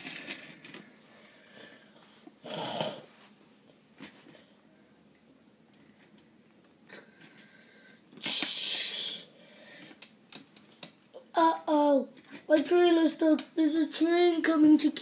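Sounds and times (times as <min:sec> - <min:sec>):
loud breathy hiss of breath: 0:07.6 - 0:10.0.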